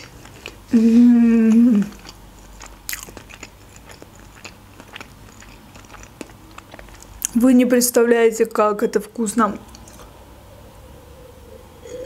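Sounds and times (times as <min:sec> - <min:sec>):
wet chewing: 0:00.0 - 0:00.7, 0:01.4 - 0:07.4
woman humming: 0:00.7 - 0:02.0.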